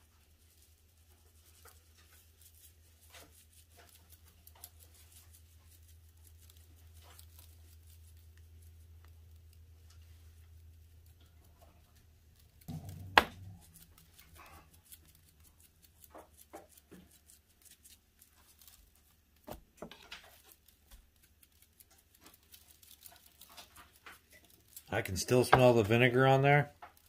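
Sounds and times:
hands patting meat on metal pan: 12.7s - 13.6s.

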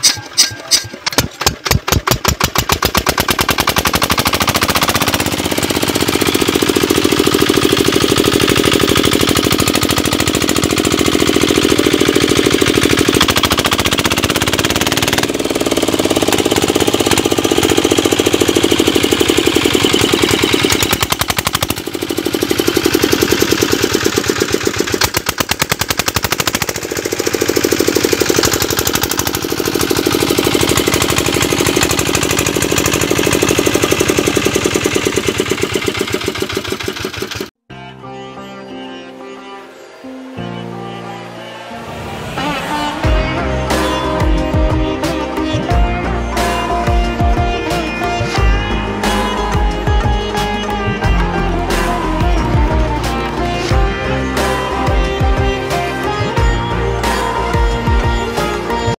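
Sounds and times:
diesel engine knocking: 0.0s - 37.6s.

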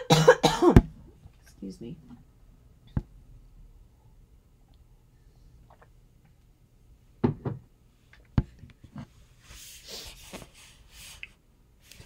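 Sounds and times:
person coughing: 0.0s - 0.9s.

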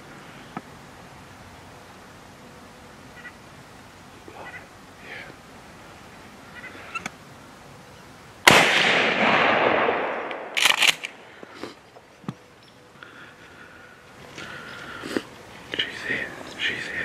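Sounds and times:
gunshot: 8.5s - 11.0s.

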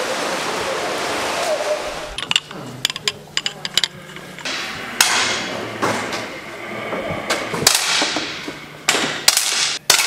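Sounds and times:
ringing echo: 4.5s - 9.8s
air pistol shots: 7.7s - 8.2s, 8.9s - 10.0s.

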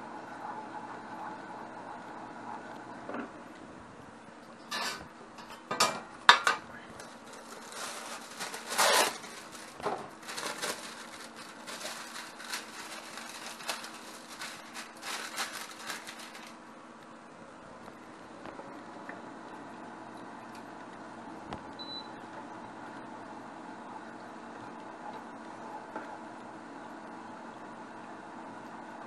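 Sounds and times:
lining sheet crinkling: 7.0s - 16.6s.

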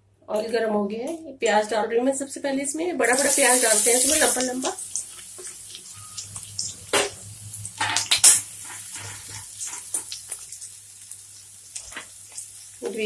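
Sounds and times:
onions sizzling in hot oil: 3.0s - 13.0s
metal spoon scraping a pan: 5.0s - 10.1s.

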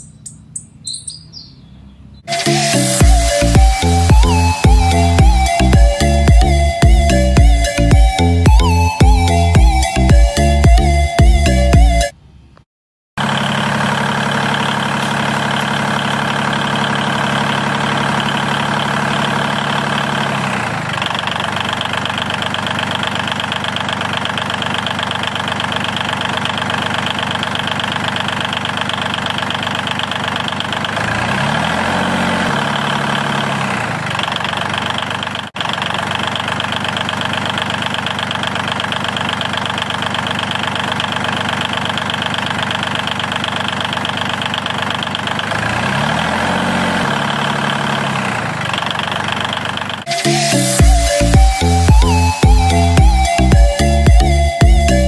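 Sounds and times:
engine idling with fast knocking: 13.2s - 50.2s, 50.8s - 55.0s.

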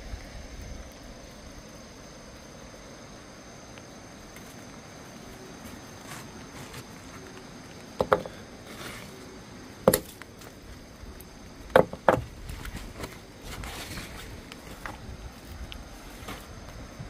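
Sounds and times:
concrete blocks knocking: 8.0s - 8.4s, 9.9s - 10.2s, 11.7s - 12.3s.

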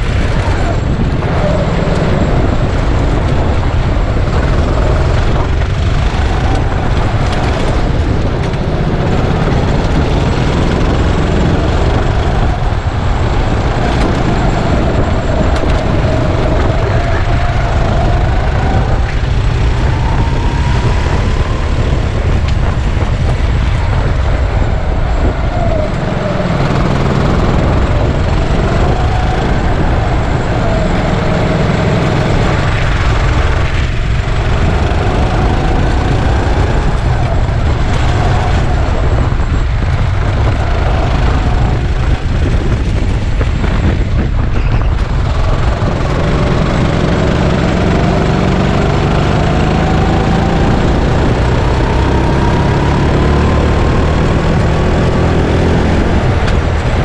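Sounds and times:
go-kart engine revving: 0.0s - 57.0s
low rumble: 0.0s - 57.0s.

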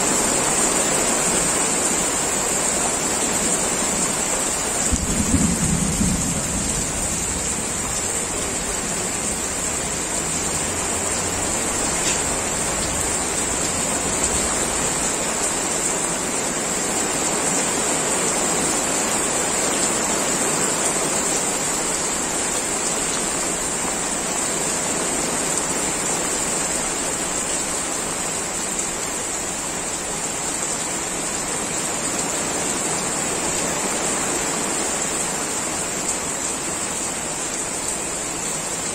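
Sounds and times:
heavy rain pouring: 0.0s - 38.9s.

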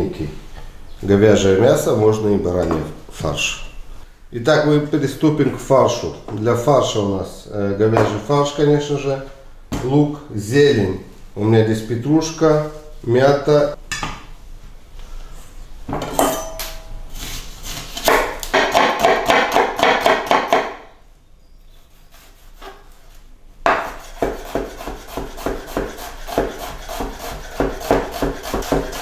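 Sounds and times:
knife chopping on wooden board: 18.0s - 20.8s, 23.6s - 29.0s.

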